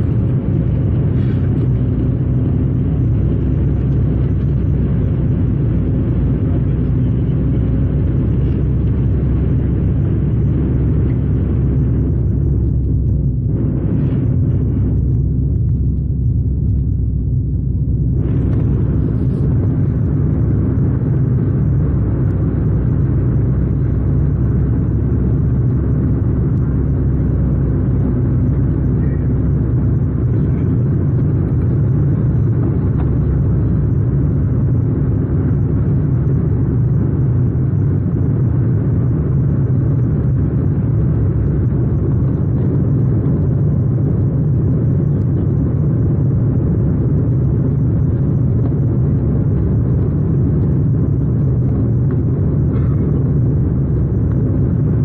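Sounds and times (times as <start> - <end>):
faint steady hum: 0.0 - 55.0
jet engine rumble: 0.0 - 55.0.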